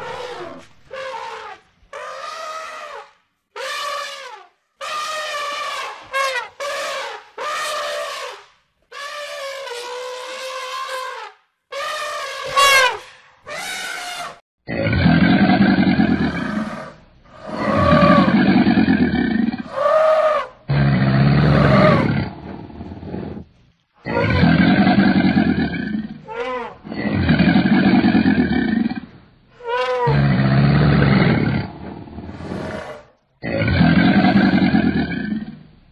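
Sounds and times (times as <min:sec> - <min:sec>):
large animal roaring: 0:00.0 - 0:00.7, 0:14.7 - 0:35.7
elephant trumpeting: 0:00.0 - 0:23.5, 0:24.1 - 0:35.5.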